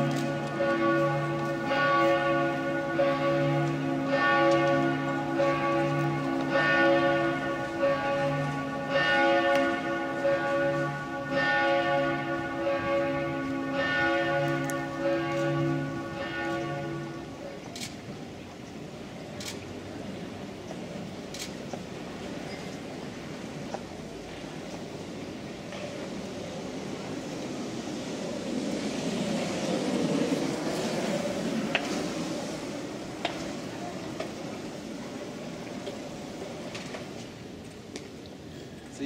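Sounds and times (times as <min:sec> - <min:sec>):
deep hum of bells: 0:00.0 - 0:17.6
church bells pealing: 0:00.0 - 0:17.7.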